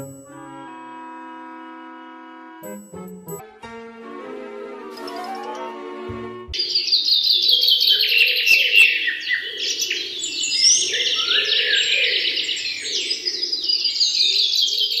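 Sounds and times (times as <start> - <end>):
birds chirping and twittering: 6.6 - 15.0.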